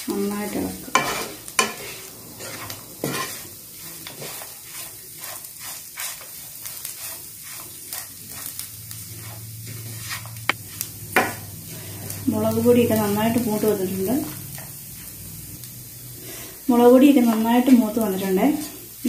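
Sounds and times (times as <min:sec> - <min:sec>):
masala sizzling in a frying pan: 0:00.0 - 0:19.0
spatula scraping a pan: 0:00.5 - 0:13.0, 0:16.2 - 0:19.0
spatula knocking on pan: 0:10.5 - 0:11.4.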